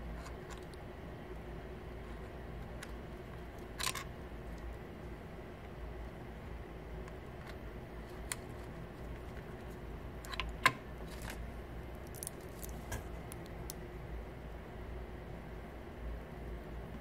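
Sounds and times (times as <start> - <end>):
low steady hum: 0.0 - 17.0
small parts clicking and tapping: 12.0 - 13.8.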